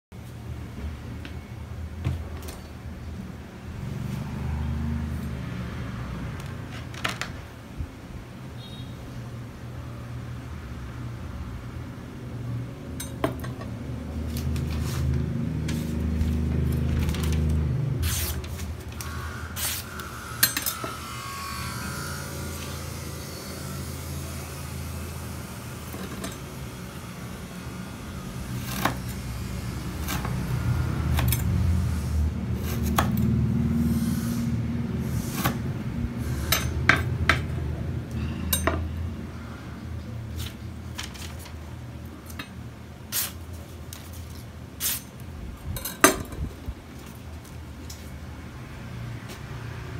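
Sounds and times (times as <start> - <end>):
paper rustling: 14.3 - 18.8.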